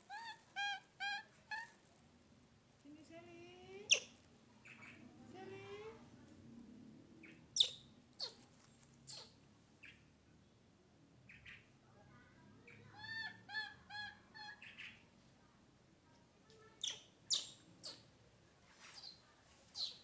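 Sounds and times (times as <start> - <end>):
baby monkey chirping calls: 0.1 - 1.7, 3.9 - 5.0, 7.2 - 8.4, 9.1 - 10.0, 12.7 - 15.0, 16.8 - 18.1, 19.0 - 20.0
baby monkey squealing: 0.1 - 1.7, 3.9 - 4.1, 7.6 - 8.4, 9.1 - 9.4, 13.0 - 14.6, 16.8 - 18.0.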